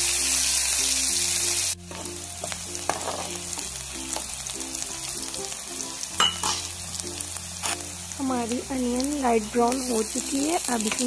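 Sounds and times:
onions sizzling in oil: 0:00.0 - 0:11.0
spoon scraping and tapping pan: 0:01.9 - 0:03.4, 0:06.2 - 0:06.7.

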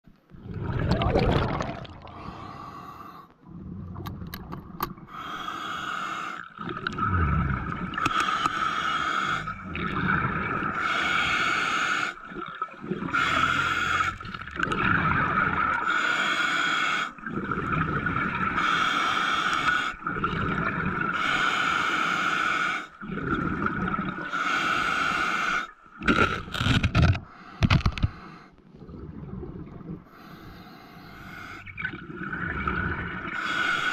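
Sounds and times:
gurgling exhaled bubbles: 0:00.3 - 0:02.6, 0:06.4 - 0:16.1, 0:17.2 - 0:18.9, 0:19.6 - 0:21.3, 0:23.0 - 0:24.3, 0:28.7 - 0:30.6, 0:31.5 - 0:33.9
regulator breathing hiss: 0:05.1 - 0:06.4, 0:08.1 - 0:09.6, 0:30.1 - 0:31.7, 0:33.4 - 0:33.9.

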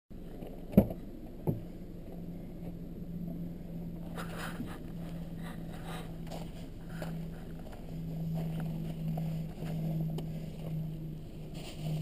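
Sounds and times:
steady low hum: 0:00.1 - 0:12.0
footsteps crunching in snow: 0:04.1 - 0:12.0.

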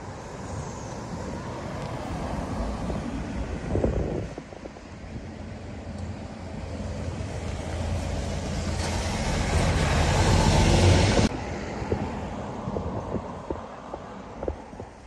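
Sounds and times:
engine humming: 0:02.9 - 0:14.9
rushing noise: 0:06.5 - 0:15.0.

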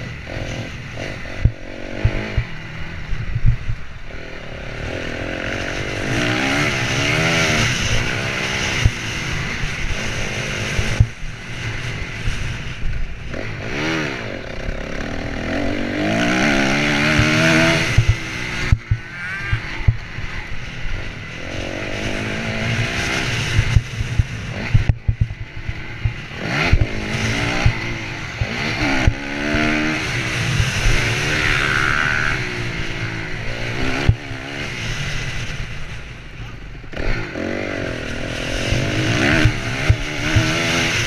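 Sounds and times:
motorcycle engine revving: 0:00.0 - 0:41.0
knocks and thumps over bumps: 0:23.5 - 0:27.0.

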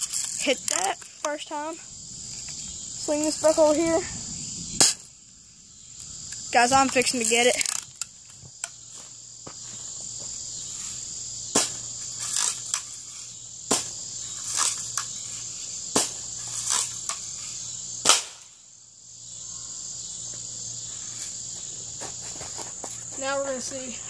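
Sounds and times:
crickets chirring: 0:00.0 - 0:24.0
bb gun shots: 0:18.0 - 0:18.5.

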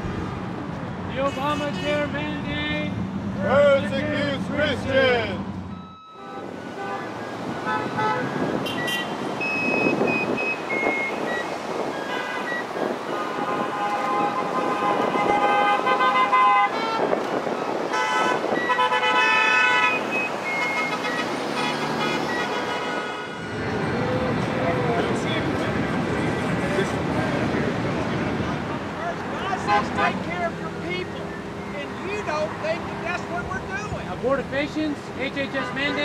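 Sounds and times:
traffic noise: 0:00.0 - 0:36.0
car horns honking: 0:01.2 - 0:02.5, 0:05.7 - 0:23.8, 0:29.4 - 0:31.1, 0:35.2 - 0:36.0.

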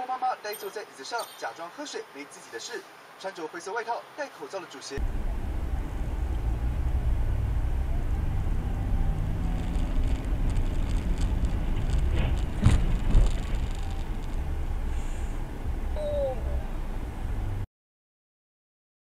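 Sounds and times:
car cabin rumble: 0:05.0 - 0:17.6.

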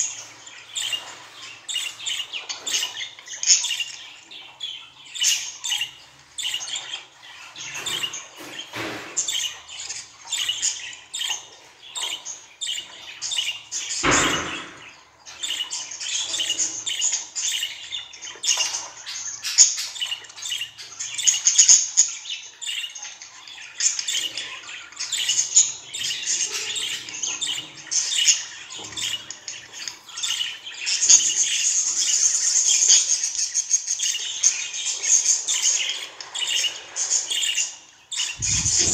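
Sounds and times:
low thump: 0:38.4 - 0:38.9.

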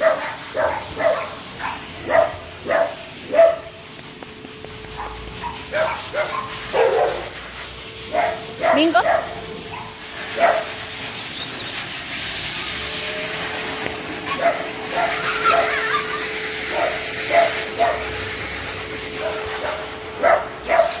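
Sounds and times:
dog barking: 0:00.0 - 0:03.8, 0:05.0 - 0:07.4, 0:08.1 - 0:10.7, 0:14.3 - 0:18.1, 0:19.1 - 0:21.0.

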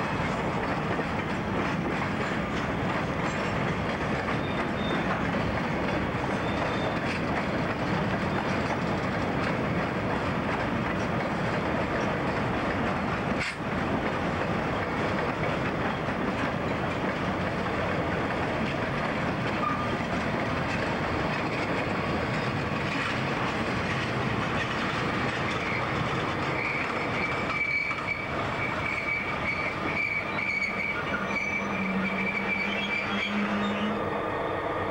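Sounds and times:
freight train cars rolling: 0:00.0 - 0:34.9
high wheel squeal: 0:04.3 - 0:05.2, 0:06.3 - 0:07.0, 0:19.6 - 0:20.0, 0:24.6 - 0:34.3.

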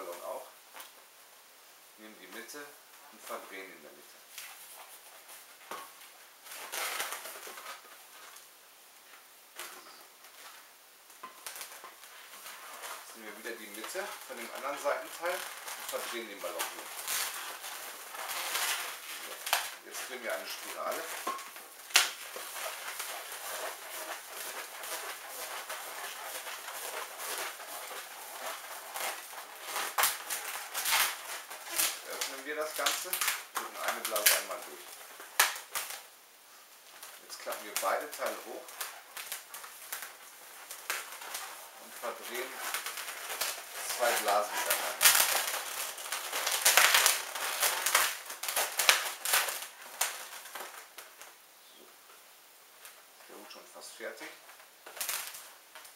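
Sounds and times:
balloon squeaking and rubbing: 0:06.4 - 0:08.2, 0:11.4 - 0:36.1, 0:37.0 - 0:51.0.

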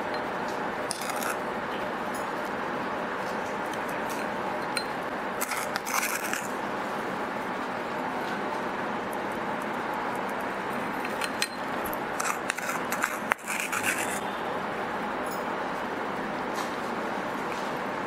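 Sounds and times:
steady background noise: 0:00.0 - 0:18.0
metal spoon scraping glass: 0:00.9 - 0:01.4, 0:04.2 - 0:06.5, 0:12.2 - 0:14.4.

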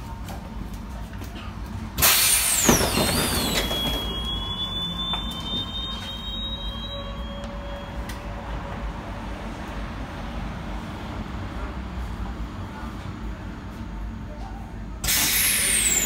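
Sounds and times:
low hum of stopped tram: 0:00.0 - 0:16.0
tram doors hissing: 0:01.9 - 0:09.8, 0:15.0 - 0:16.0
high squeal sliding down: 0:02.0 - 0:08.4, 0:15.1 - 0:16.0.

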